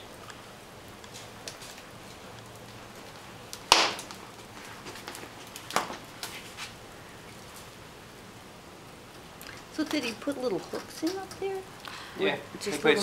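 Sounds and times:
wood fire crackling: 0:00.0 - 0:13.0
sharp fire pops: 0:01.0 - 0:07.8.

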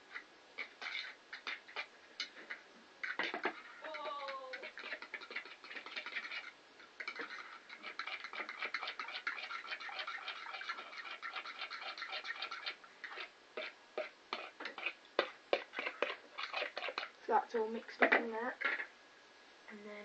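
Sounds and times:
fork beating egg in plastic bowl: 0:00.0 - 0:18.9.

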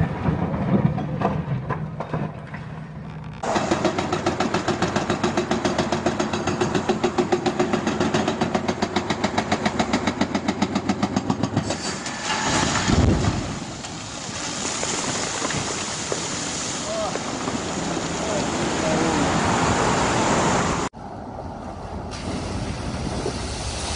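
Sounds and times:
hydraulic breaker hammering rock: 0:03.4 - 0:11.7
rock crashing down: 0:11.8 - 0:18.0
rushing water: 0:12.0 - 0:20.9.

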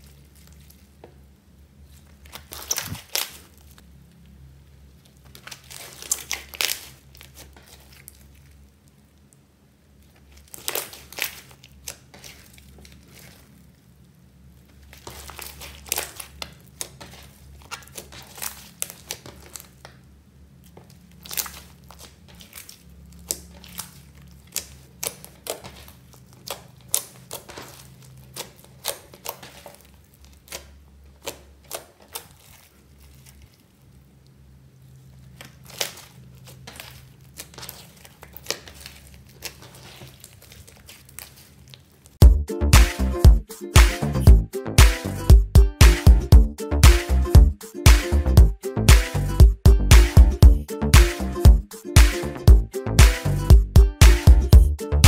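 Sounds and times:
hands squishing slime: 0:00.0 - 0:01.1, 0:01.8 - 0:03.8, 0:04.9 - 0:09.4, 0:10.0 - 0:34.1, 0:34.8 - 0:42.2.

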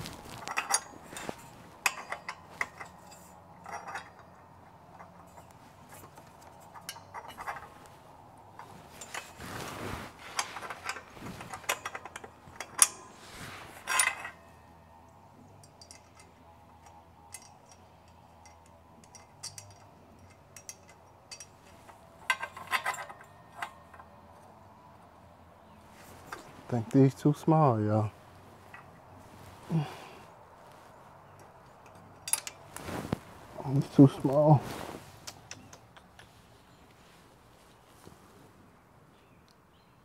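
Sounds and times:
metal tools clinking against metal: 0:00.0 - 0:30.2, 0:31.0 - 0:35.8.

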